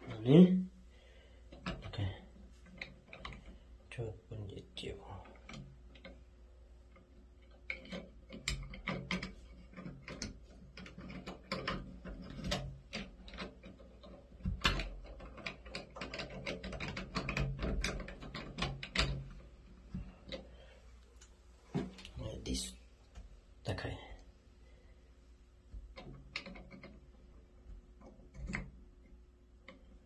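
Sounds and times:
small parts clicking and ratcheting: 1.4 - 3.8, 5.1 - 20.6, 25.9 - 27.2.

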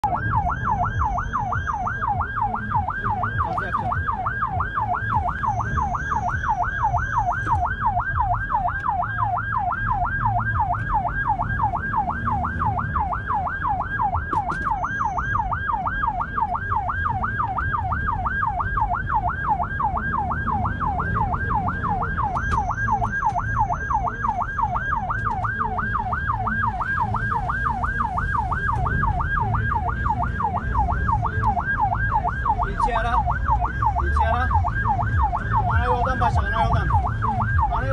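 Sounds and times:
engine and road rumble: 0.0 - 37.9
siren yelping: 0.0 - 37.9.

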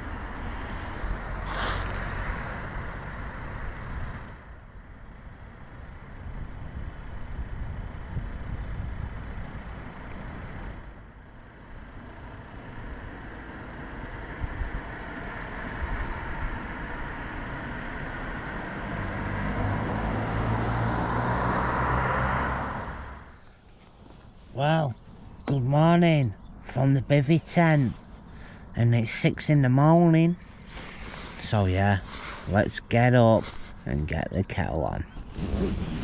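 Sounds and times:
car engines running: 0.0 - 6.2, 9.2 - 36.0.

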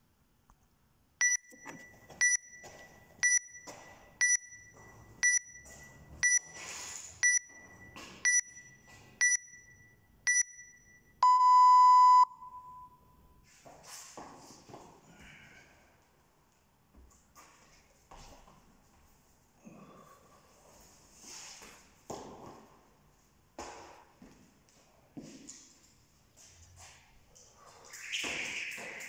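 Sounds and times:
long lower beep: 1.2 - 6.6, 7.2 - 13.4
short high beeps: 1.2 - 6.6, 7.2 - 13.4.

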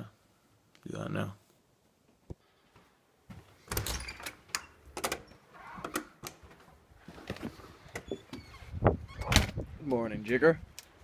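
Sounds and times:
door opening: 3.6 - 6.6, 7.2 - 9.7.

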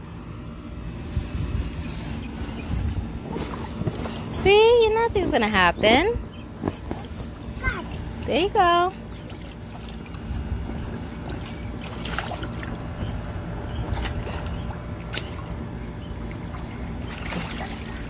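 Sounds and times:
water sloshing in a pool: 2.1 - 18.0
sharp splashes: 11.2 - 15.6, 16.2 - 18.0.

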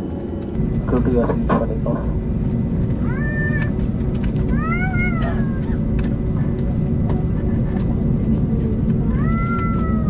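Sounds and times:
airliner cabin rumble: 0.0 - 10.0.

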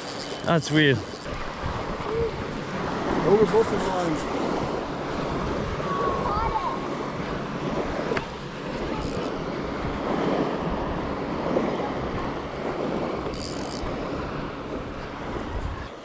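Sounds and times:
fishing reel whirring: 0.0 - 2.3, 3.3 - 4.8, 8.7 - 9.5, 13.2 - 14.0
small surf washing: 0.0 - 16.0
wind buffeting microphone: 0.0 - 16.0.

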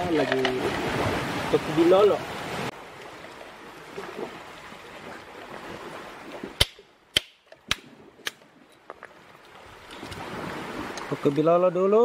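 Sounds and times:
surf hiss: 0.0 - 6.6, 9.8 - 12.0.

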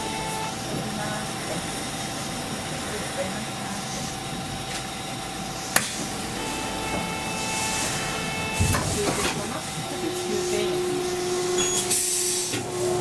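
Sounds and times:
tram running noise: 0.0 - 13.0
tram whine: 0.0 - 13.0
low steady hum: 5.8 - 11.6.

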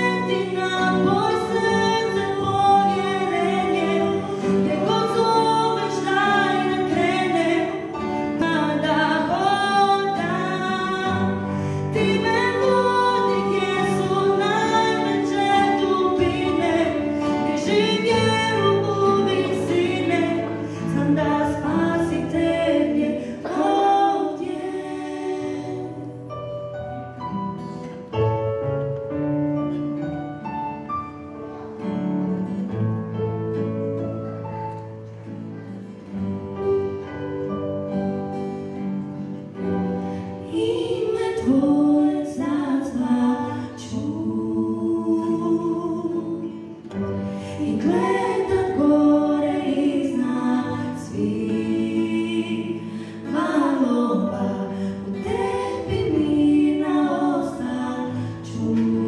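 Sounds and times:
woman singing: 0.0 - 26.4, 40.4 - 59.0
small band playing: 26.6 - 41.8.

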